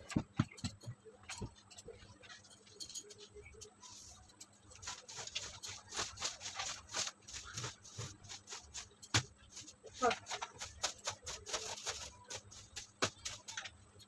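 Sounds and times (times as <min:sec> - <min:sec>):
hand patting and brushing fabric: 0:04.8 - 0:13.6.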